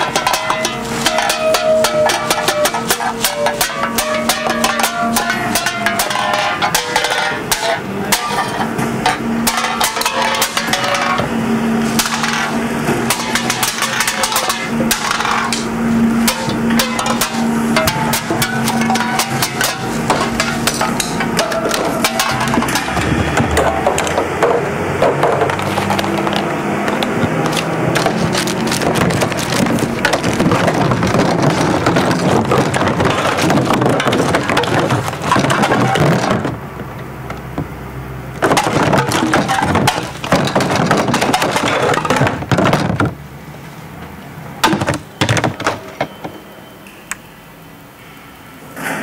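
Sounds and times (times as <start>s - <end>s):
garbage truck engine hum: 0.0s - 46.7s
scattered knocks: 13.1s - 36.6s, 38.4s - 43.2s
packaging crackling and crushing: 25.2s - 36.6s.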